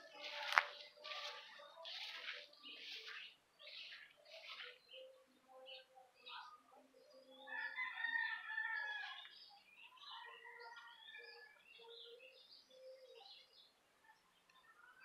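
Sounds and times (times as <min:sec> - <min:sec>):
small birds chirping: 0:00.0 - 0:15.0
rooster crowing: 0:07.5 - 0:09.2.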